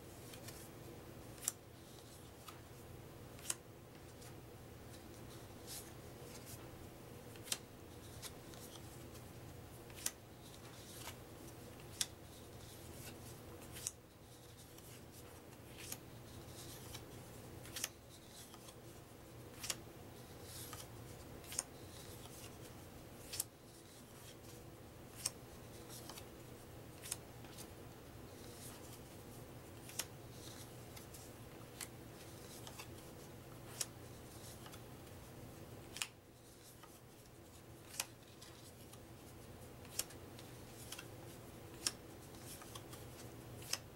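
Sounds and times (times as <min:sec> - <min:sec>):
paper cards snapping: 0:01.4 - 0:01.6, 0:19.5 - 0:19.8, 0:35.9 - 0:37.0, 0:39.8 - 0:41.1, 0:41.7 - 0:43.9.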